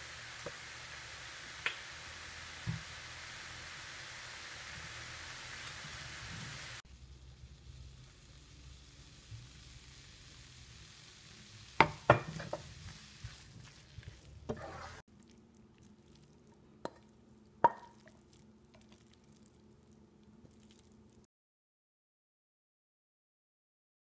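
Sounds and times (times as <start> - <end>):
food sizzling in a pan: 0.0 - 21.3
wooden spatula scraping a pan: 11.8 - 15.0
ceramic bowl clinking: 16.8 - 18.1.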